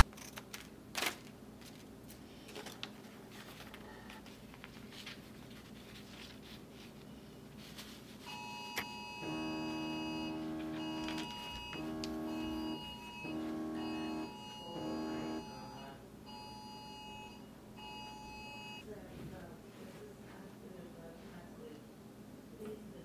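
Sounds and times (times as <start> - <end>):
paper sheets rustling: 0.0 - 8.3, 10.6 - 12.2
soft organ-like keyboard chords: 8.4 - 18.8.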